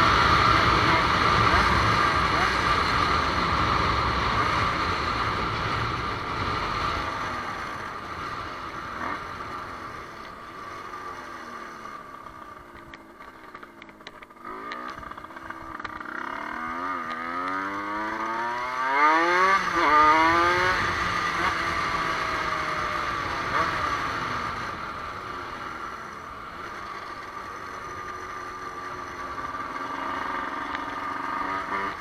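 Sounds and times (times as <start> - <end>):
rushing wind: 0.0 - 10.6
dirt bike engine accelerating: 0.0 - 32.0.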